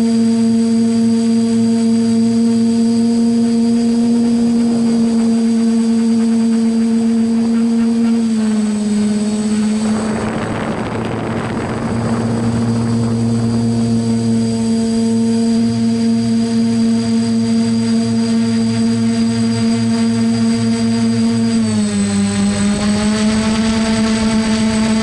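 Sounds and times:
drone motors whining: 0.0s - 25.0s
wind rushing: 9.0s - 15.5s.

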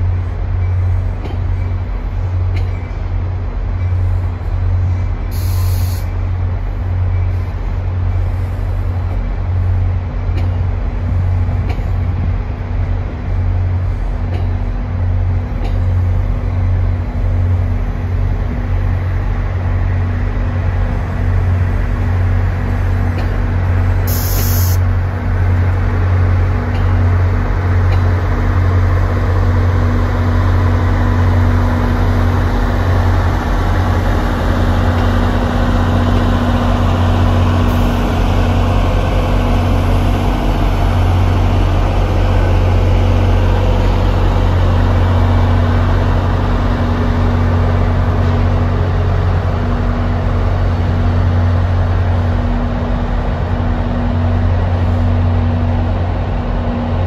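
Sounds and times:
diesel locomotive engine running: 0.0s - 57.0s
sharp hiss of air: 5.3s - 6.2s, 24.0s - 24.8s.

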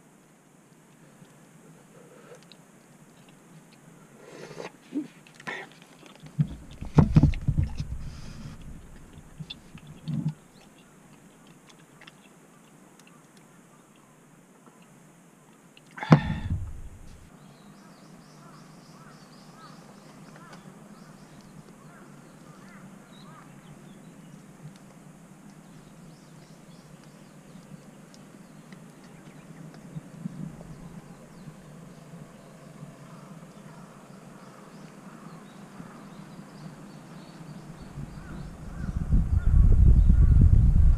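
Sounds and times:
outdoor background noise: 0.0s - 40.9s
soft bumps: 6.3s - 10.3s, 16.0s - 17.3s
faint bird chirps: 16.0s - 24.5s.

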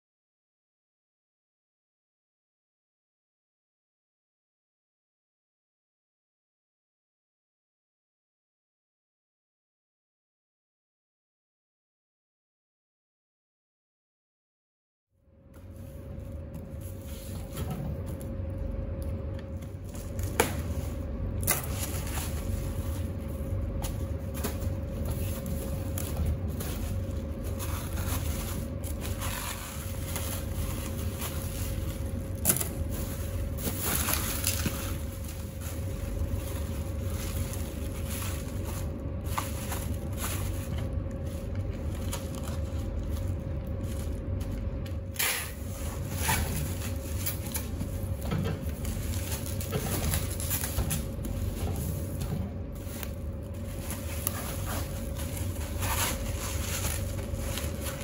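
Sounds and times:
low room hum: 15.2s - 58.0s
bubble wrap crinkling: 15.6s - 58.0s.

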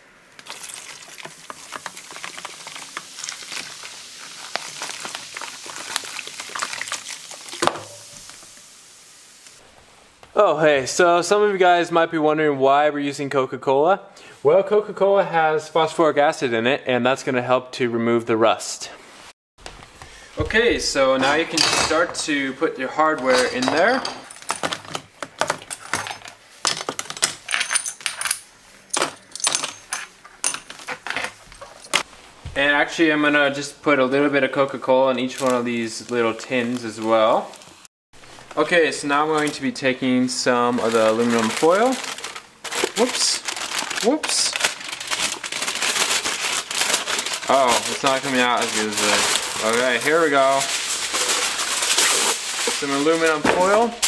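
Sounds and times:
carbonation fizzing: 0.3s - 9.6s
soda pouring into plastic tub: 0.4s - 8.6s.

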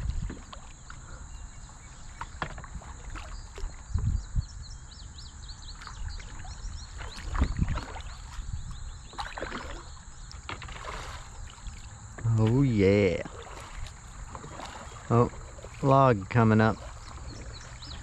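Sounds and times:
paddle splashing water: 0.0s - 4.2s, 5.7s - 18.0s
bird chirping: 4.1s - 10.3s, 16.4s - 18.0s.

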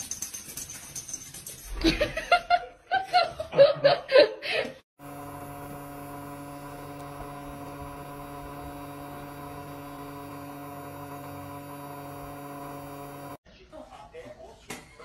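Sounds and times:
steady electric hum: 5.0s - 13.4s.

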